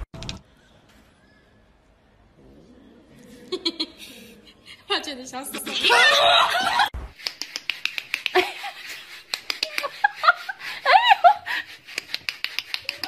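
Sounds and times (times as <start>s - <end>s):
person laughing and giggling: 3.4s - 4.3s, 8.2s - 12.2s.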